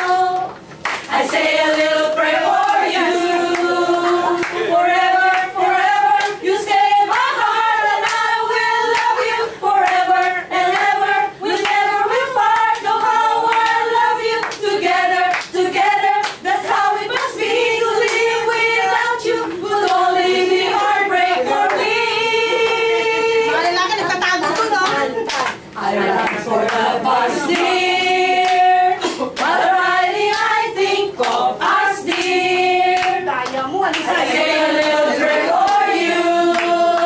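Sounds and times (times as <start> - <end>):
hand claps: 0.0 - 1.9, 8.0 - 8.2, 8.9 - 9.2, 14.4 - 14.6, 24.5 - 25.6, 29.3 - 29.6, 30.3 - 30.6, 32.1 - 32.4, 33.0 - 34.1, 35.6 - 35.9, 36.5 - 37.0
group of women singing: 0.0 - 37.0.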